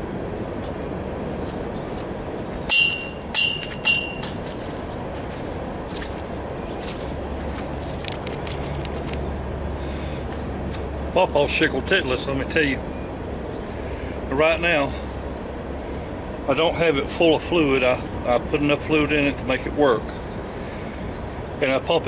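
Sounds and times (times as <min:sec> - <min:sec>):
metal clanks with ringing: 0:02.7 - 0:04.4.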